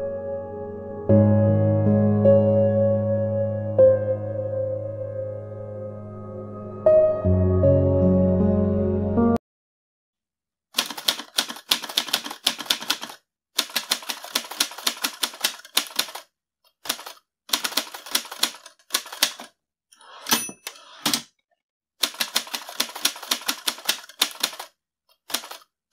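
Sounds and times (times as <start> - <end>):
typewriter keys clacking: 10.8 - 16.2, 16.9 - 19.5, 22.0 - 25.7
typewriter bell ding: 20.2 - 21.0.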